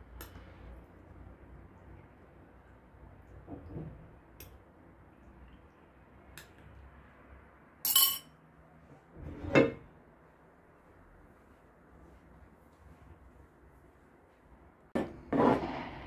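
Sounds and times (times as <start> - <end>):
metal spoon clinking on glass dish: 7.9 - 8.4.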